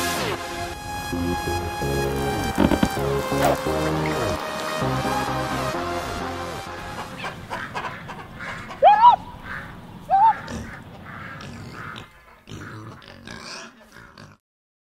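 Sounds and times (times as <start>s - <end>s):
background noise: 6.0s - 14.4s
animal-like squealing cries: 10.1s - 14.2s.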